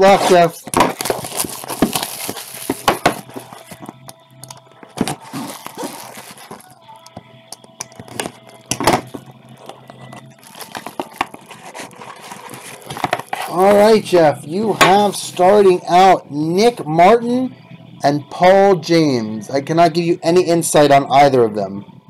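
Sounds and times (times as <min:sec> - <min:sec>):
plastic wrap crinkling and tearing: 0:00.1 - 0:07.1, 0:07.8 - 0:14.0
clicks and rustles of handling: 0:07.6 - 0:13.9.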